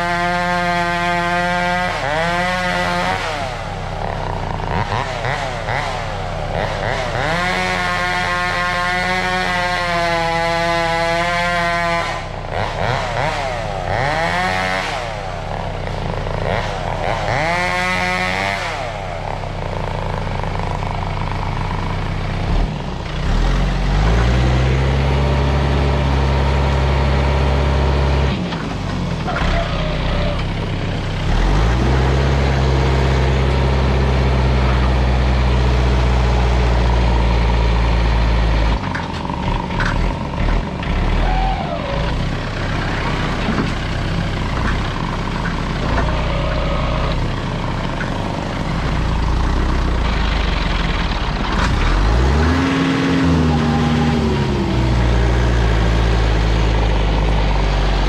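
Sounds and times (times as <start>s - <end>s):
tractor diesel engine revving: 0.0s - 58.0s.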